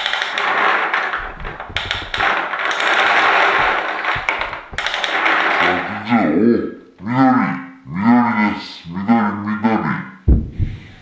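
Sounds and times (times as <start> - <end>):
ball dropping into tray: 0.0 - 6.0
plastic balls clattering in drum: 0.0 - 6.2.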